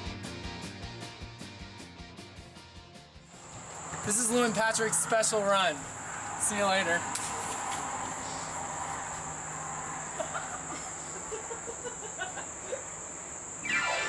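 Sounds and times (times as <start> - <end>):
insect chorus drone: 3.3 - 14.0.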